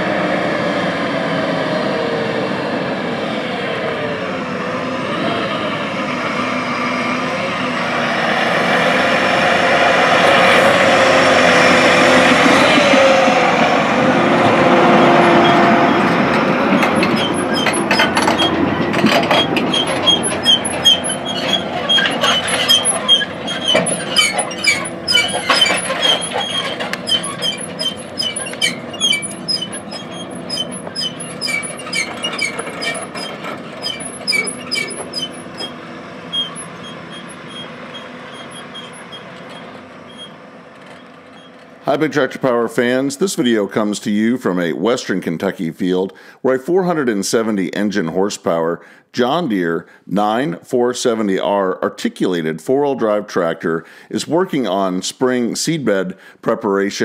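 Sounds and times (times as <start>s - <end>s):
tractor diesel engine: 0.0s - 52.0s, 52.6s - 57.0s
high metal squeaks: 10.2s - 41.8s
steel frame rattling and clanking: 15.4s - 41.9s.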